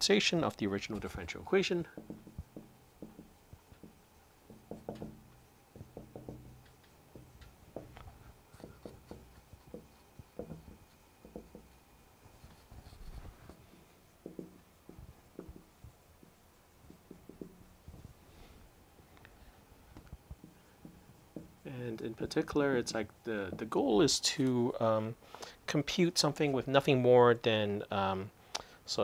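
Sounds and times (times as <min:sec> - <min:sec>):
marker writing on whiteboard: 0:01.9 - 0:17.7, 0:20.0 - 0:21.7.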